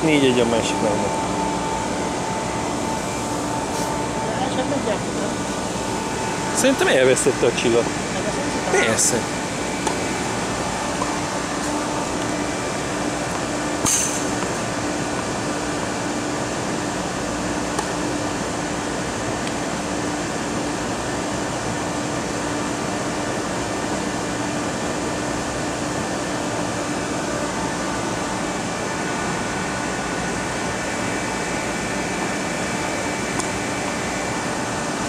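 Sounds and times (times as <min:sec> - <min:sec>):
constant low hum: 0:00.0 - 0:35.0
sharp clink: 0:13.8 - 0:14.4.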